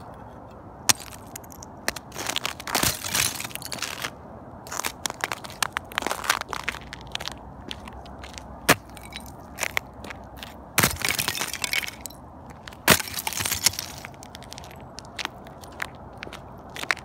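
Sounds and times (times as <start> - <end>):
ice-crusted snow cracking: 0.9 - 4.1, 4.7 - 9.8, 12.9 - 14.6.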